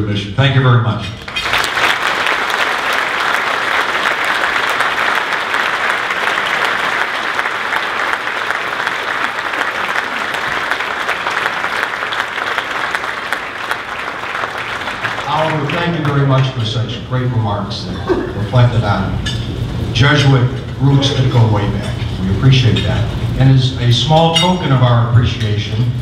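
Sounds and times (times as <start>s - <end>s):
audience applauding: 1.2s - 17.3s.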